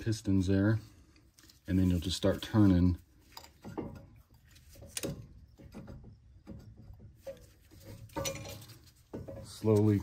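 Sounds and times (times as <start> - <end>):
metal clamp clicks and scrapes: 3.2 - 5.9.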